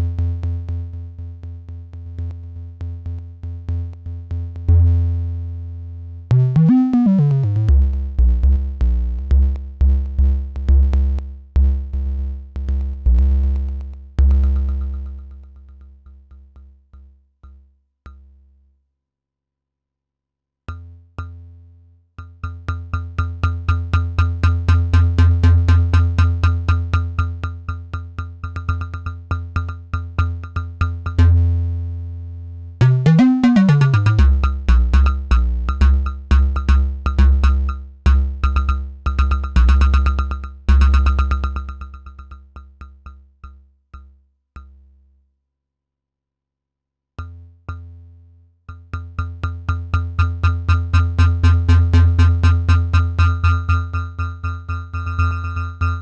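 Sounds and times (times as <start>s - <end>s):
synthesizer bass notes: 6.3s - 7.9s, 32.8s - 36.8s.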